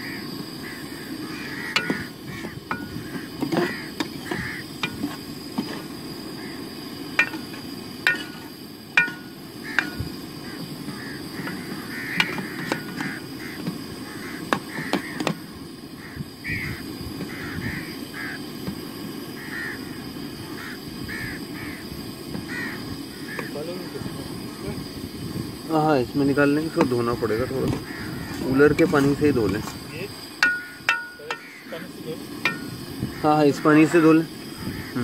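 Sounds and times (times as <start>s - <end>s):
crows cawing: 0.0s - 5.0s, 6.3s - 7.5s, 9.0s - 18.5s, 19.3s - 23.6s, 27.4s - 29.1s, 30.4s - 35.0s
sharp ringing knocks: 2.7s - 5.2s, 7.2s - 10.1s, 30.4s - 31.6s, 32.4s - 32.8s.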